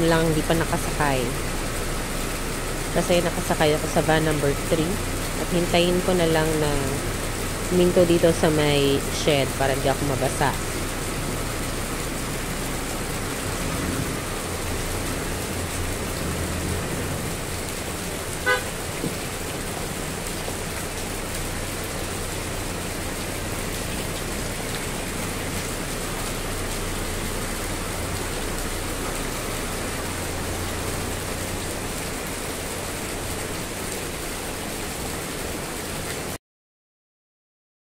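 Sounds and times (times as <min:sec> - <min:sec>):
van engines running: 0:00.0 - 0:35.8
heavy rain: 0:00.0 - 0:36.4
vehicle horn toot: 0:18.4 - 0:18.8.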